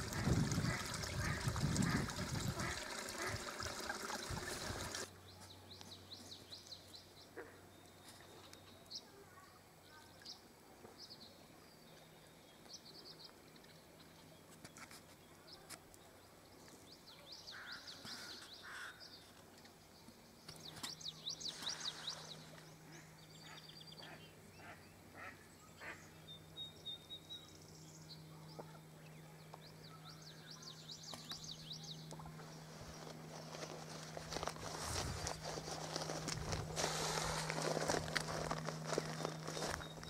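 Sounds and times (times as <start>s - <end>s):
faint steady low hum: 0.0s - 40.0s
small birds singing and chirping: 11.0s - 25.0s, 25.6s - 33.8s, 38.5s - 40.0s.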